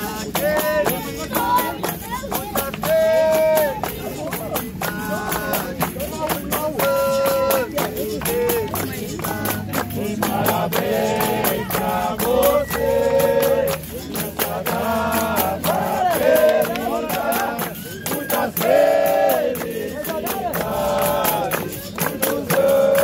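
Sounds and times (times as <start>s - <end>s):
group singing together: 0.0s - 23.0s
hand clapping: 0.0s - 23.0s
percussion and berimbau beat: 0.0s - 23.0s.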